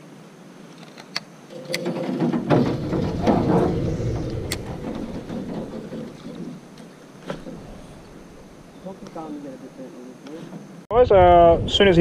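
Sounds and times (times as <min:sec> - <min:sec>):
sharp clicks: 0:00.7 - 0:01.9, 0:02.9 - 0:07.4.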